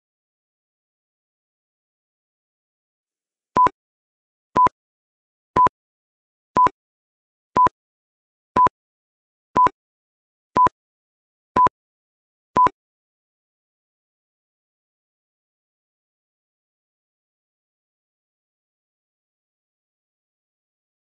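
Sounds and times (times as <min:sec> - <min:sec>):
short electronic beeps: 0:06.6 - 0:06.8, 0:09.6 - 0:09.8, 0:12.6 - 0:12.8.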